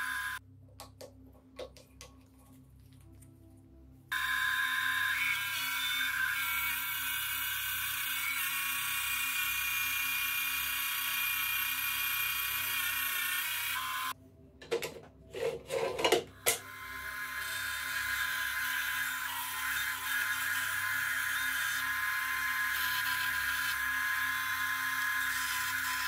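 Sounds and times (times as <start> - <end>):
bandsaw cutting wood: 4.1 - 14.2, 15.4 - 26.0.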